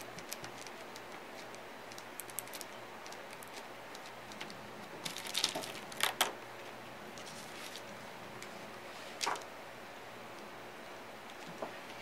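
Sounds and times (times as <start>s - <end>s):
fingertips tapping on plastic stencil: 0.0s - 4.6s
clicks and rustles: 0.0s - 8.5s.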